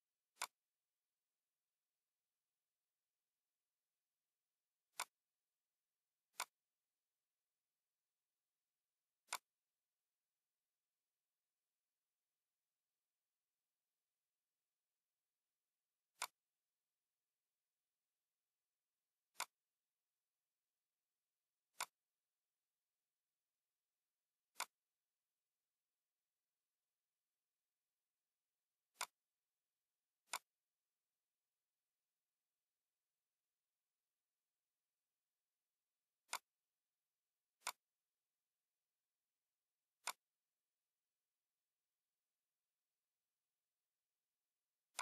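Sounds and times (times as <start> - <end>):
computer mouse clicks: 0.3 - 0.6, 4.9 - 5.2, 6.3 - 6.7, 9.2 - 9.6, 16.1 - 16.5, 19.3 - 19.7, 21.7 - 22.0, 24.5 - 24.9, 28.9 - 29.2, 30.2 - 30.6, 36.2 - 36.6, 37.6 - 37.9, 40.0 - 40.4.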